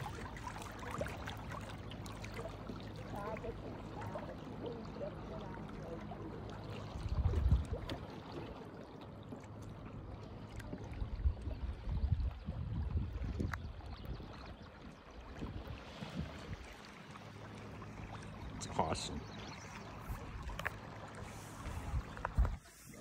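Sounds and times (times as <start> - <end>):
water burbling around a kayak: 0.0 - 23.0.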